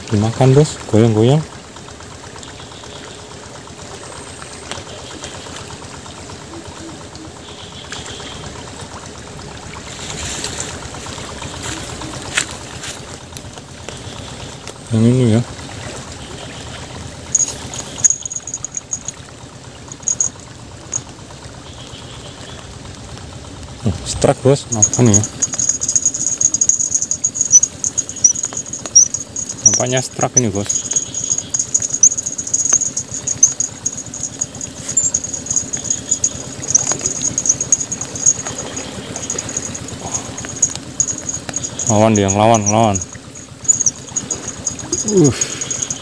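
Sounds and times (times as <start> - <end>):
insects chirping: 4.0 - 8.9, 16.2 - 22.7, 24.6 - 46.0
fishing reel whirring: 17.3 - 19.2, 19.8 - 21.1, 24.7 - 46.0
short high tinkles: 17.4 - 19.2, 19.9 - 21.0, 24.7 - 46.0.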